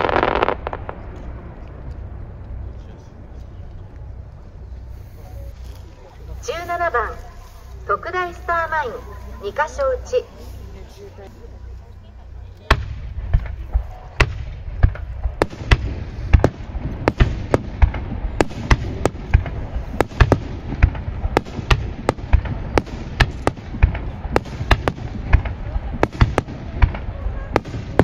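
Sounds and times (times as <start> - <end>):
fireworks bangs: 0.0 - 1.5, 12.6 - 28.0
low rumble: 0.0 - 28.0.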